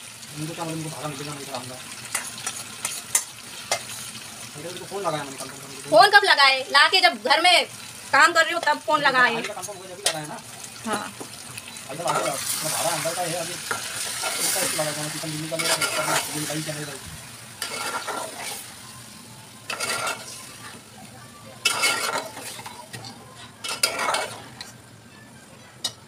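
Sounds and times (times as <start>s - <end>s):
food sizzling: 0.0s - 26.0s
spatula scraping a pot: 15.6s - 16.3s, 17.6s - 18.6s, 19.7s - 20.5s, 21.6s - 24.8s.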